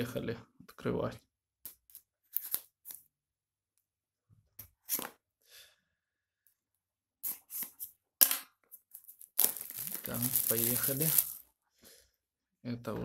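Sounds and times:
knife scraping plastic wrap: 9.0 - 11.4.

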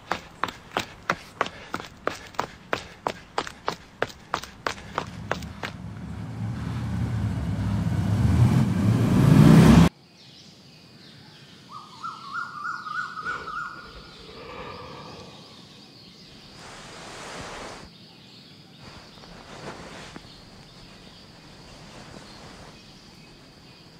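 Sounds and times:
quick footsteps: 0.0 - 5.8
faint insect-like hum: 9.9 - 23.9
bird chirps: 10.5 - 23.9.

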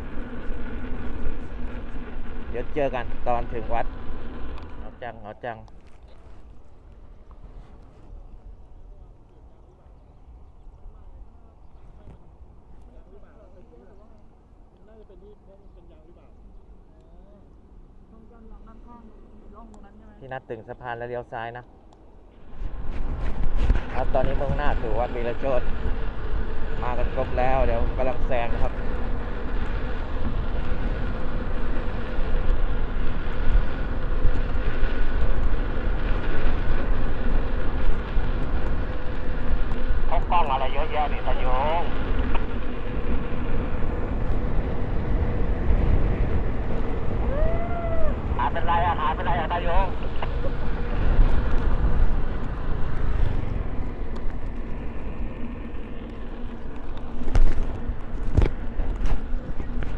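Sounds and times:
road noise: 0.0 - 59.9
thin steady whine: 0.0 - 59.9
traffic going by: 0.0 - 59.9
wind on microphone: 22.3 - 59.9.

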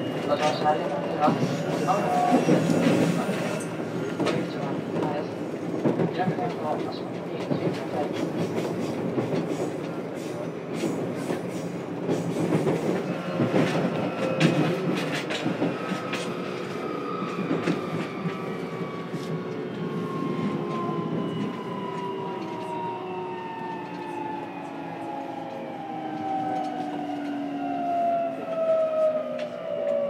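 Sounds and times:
train wheels rolling rumble: 0.5 - 30.0
rail-joint clicks: 5.8 - 18.4.

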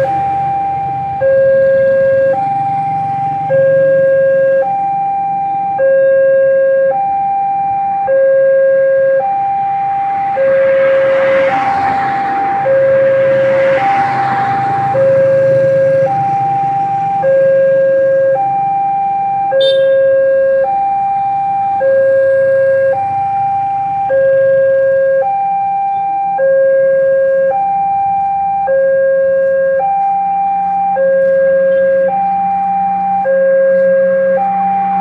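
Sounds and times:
level crossing two-tone alarm: 0.0 - 35.0.

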